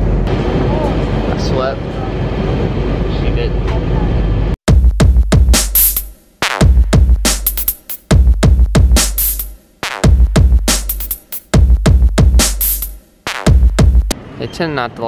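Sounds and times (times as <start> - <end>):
electronic music with drum-machine beat: 4.7 - 14.1.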